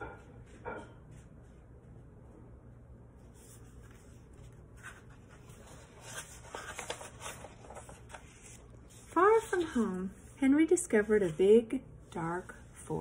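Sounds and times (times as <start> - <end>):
paper pages rustling: 3.2 - 10.3.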